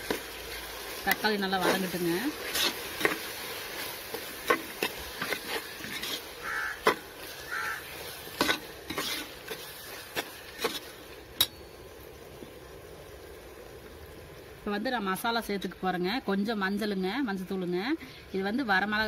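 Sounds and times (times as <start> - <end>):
vegetables sizzling in oil: 0.0 - 19.0
spoon clinking and scraping pot: 4.1 - 7.0, 8.3 - 11.7.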